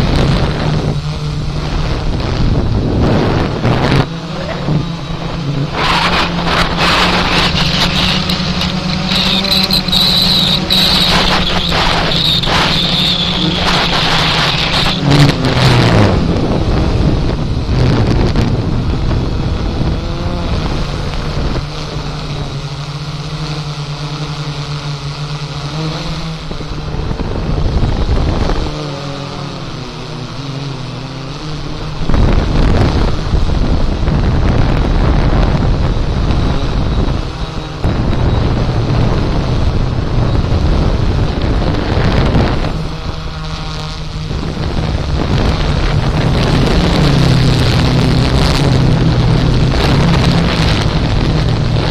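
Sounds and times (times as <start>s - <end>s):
wind buffeting microphone: 0.0s - 24.1s, 24.7s - 51.9s
drone motors humming: 0.0s - 51.9s.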